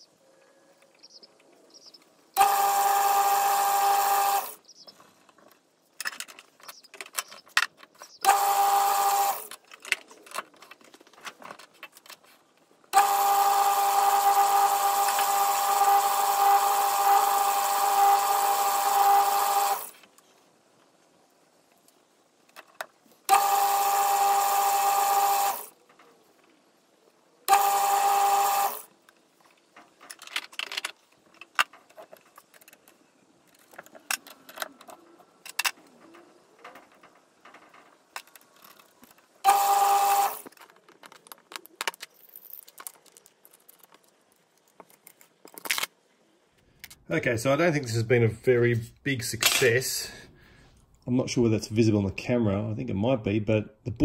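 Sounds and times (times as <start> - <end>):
metal lathe running: 2.4 - 4.6, 8.2 - 9.4, 13.0 - 19.9, 23.3 - 25.7, 27.5 - 28.8, 39.5 - 40.4
tools clicking and knocking: 5.3 - 8.4, 29.1 - 39.7.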